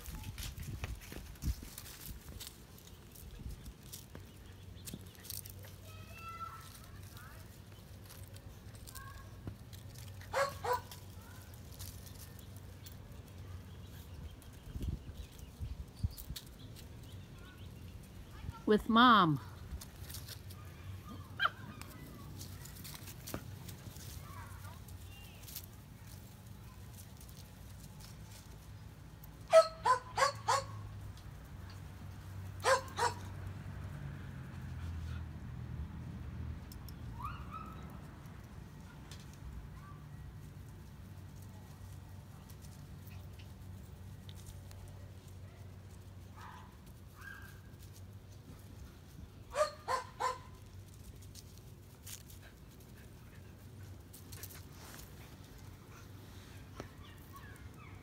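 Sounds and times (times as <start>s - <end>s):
dog barking: 10.3s - 11.0s, 29.5s - 30.8s, 32.6s - 33.2s, 49.5s - 50.5s.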